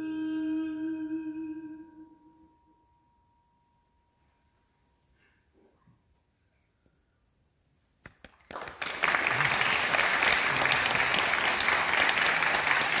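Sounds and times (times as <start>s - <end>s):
audience applause: 8.2s - 13.0s.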